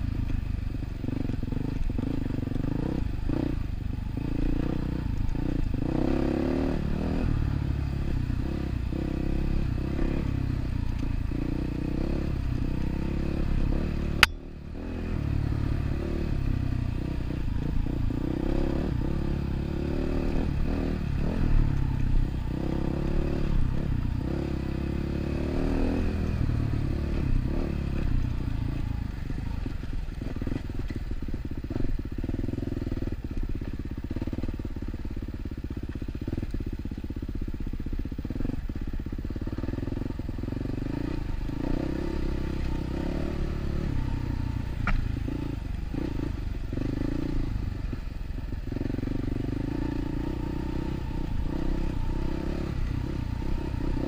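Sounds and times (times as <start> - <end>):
dirt bike engine revving: 1.1 - 10.6, 11.2 - 28.8, 39.4 - 54.0
sharp click: 14.2 - 14.5, 44.8 - 45.0.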